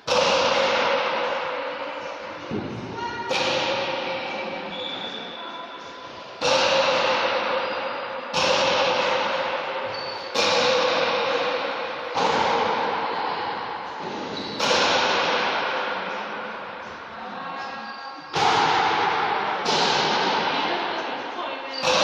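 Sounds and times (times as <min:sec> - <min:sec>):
rubber ball hitting wooden paddles: 0:06.4 - 0:16.0.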